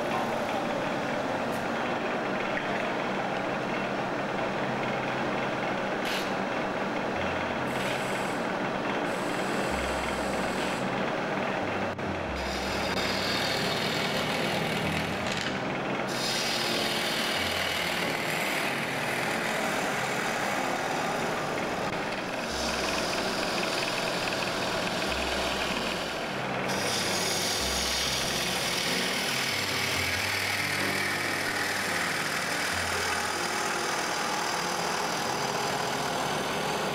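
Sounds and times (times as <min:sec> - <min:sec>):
gouge scraping wood on lathe: 0:12.4 - 0:36.9.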